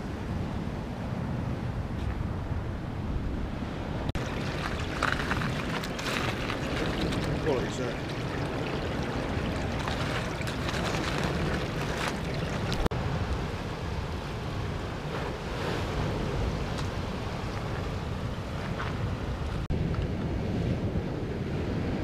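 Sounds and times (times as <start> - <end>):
wind buffeting microphone: 0.0 - 22.0
waves washing on shore: 3.7 - 19.7
water running between pebbles: 4.2 - 12.9.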